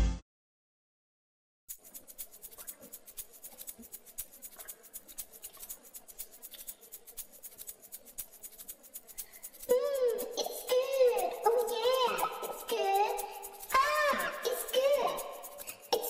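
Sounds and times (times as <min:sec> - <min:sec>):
faint rapid clicking and crackle: 0:01.7 - 0:16.0.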